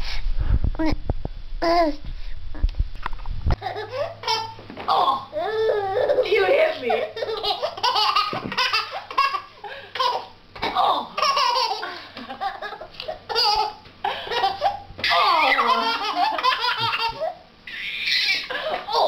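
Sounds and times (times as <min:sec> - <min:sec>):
baby laughing: 0:03.6 - 0:10.4, 0:11.1 - 0:19.0
woman laughing: 0:05.6 - 0:07.4, 0:14.0 - 0:17.4, 0:18.3 - 0:19.0.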